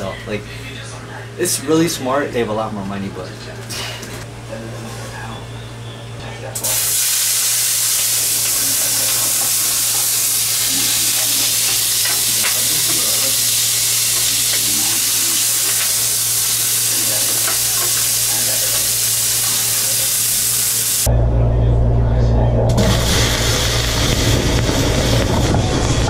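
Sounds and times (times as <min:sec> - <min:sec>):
oil sizzling in frying pan: 0:06.6 - 0:21.1.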